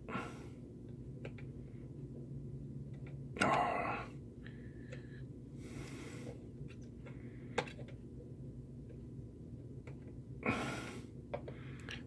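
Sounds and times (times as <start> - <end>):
person breathing out heavily: 0.0 - 0.7, 3.4 - 6.5, 10.4 - 12.0
low hum: 0.0 - 12.0.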